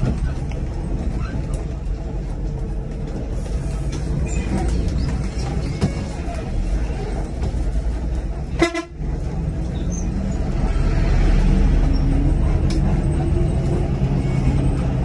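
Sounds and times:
bus engine rumble: 0.0s - 15.0s
vehicle horn toot: 8.6s - 9.0s.

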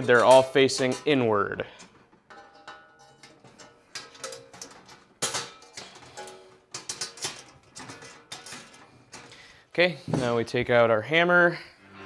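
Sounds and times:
wrench clanking on steel: 0.2s - 9.5s
steel plates ringing: 2.3s - 8.9s.

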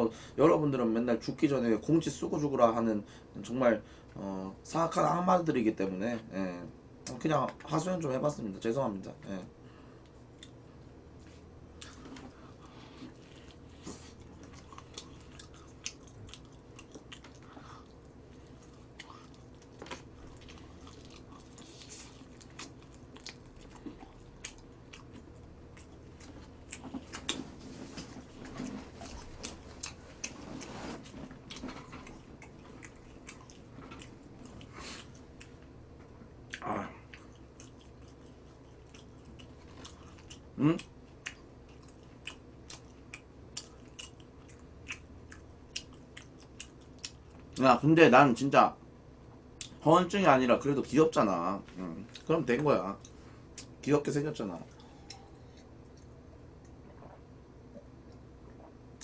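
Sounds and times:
chewing crispy chicken: 10.1s - 35.7s, 36.3s - 47.7s.

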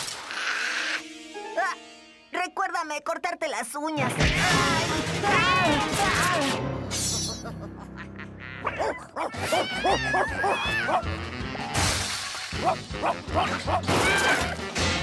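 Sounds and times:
lively background music: 1.0s - 2.8s, 4.0s - 8.4s, 9.3s - 15.0s
cartoon dog barking: 8.5s - 11.2s, 12.6s - 14.6s.

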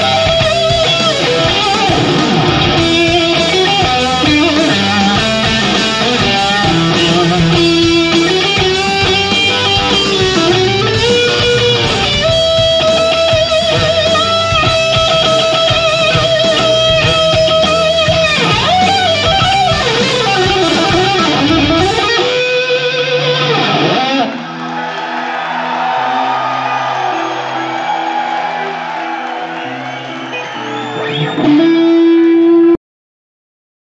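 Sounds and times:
bass and drums: 0.0s - 22.4s
distorted electric guitar lead: 0.0s - 24.7s, 28.6s - 32.8s.

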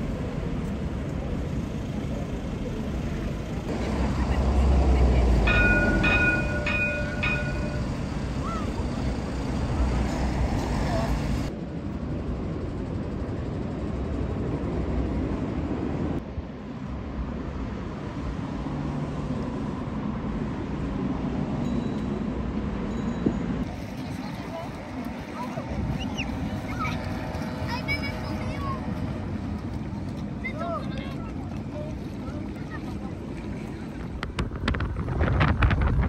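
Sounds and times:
street noise: 0.0s - 36.0s
tram passing with low rumble: 0.0s - 36.0s
tram warning bell ringing: 4.4s - 10.3s, 21.5s - 23.6s
faint voices: 23.7s - 34.4s.

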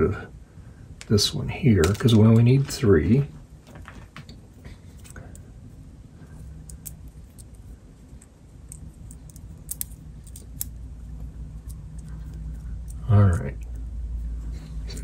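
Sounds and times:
steady low hum: 0.0s - 15.0s
clicks of small wires handled: 6.6s - 10.8s.

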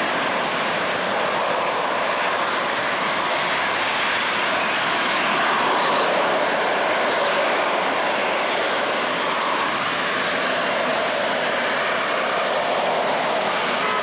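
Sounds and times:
jet flying past: 0.0s - 14.0s.

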